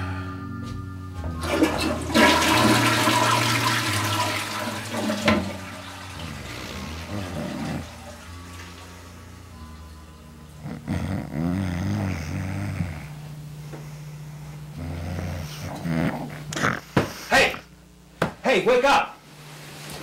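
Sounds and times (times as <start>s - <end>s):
toilet flushing: 1.4s - 9.5s.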